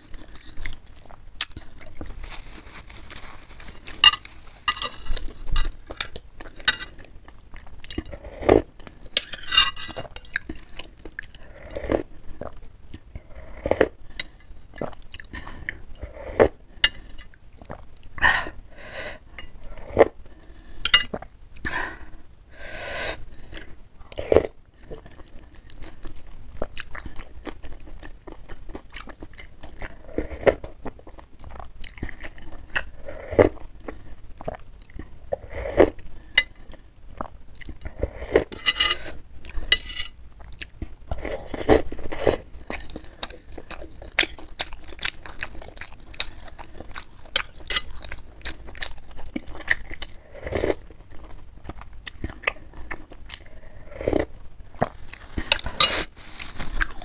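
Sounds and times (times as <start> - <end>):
slurping broth: 11.3 - 12.6, 15.4 - 16.6, 35.3 - 36.0, 37.2 - 40.1.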